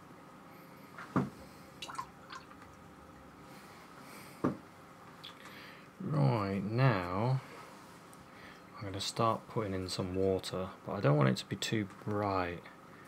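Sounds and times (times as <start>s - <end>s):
water plinks: 1.8s - 2.8s.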